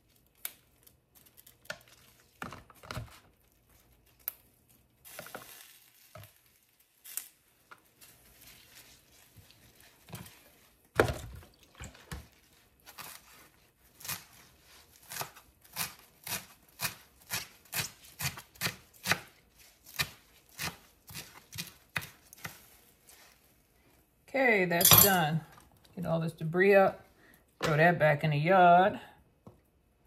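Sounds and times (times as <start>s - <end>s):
knife chopping leaves: 12.8s - 22.7s.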